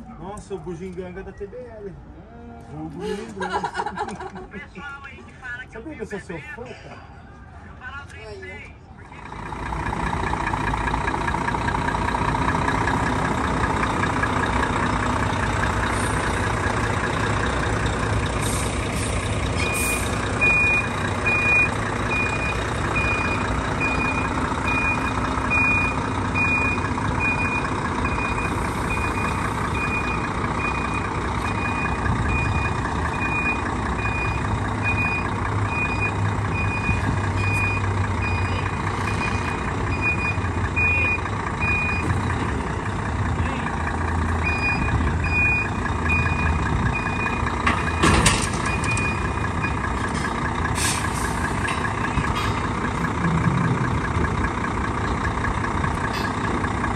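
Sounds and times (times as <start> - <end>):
diesel truck engine running: 7.2 - 56.9
reversing alarm beeping: 19.6 - 42.2, 44.4 - 50.0
short air hisses: 50.8 - 51.4.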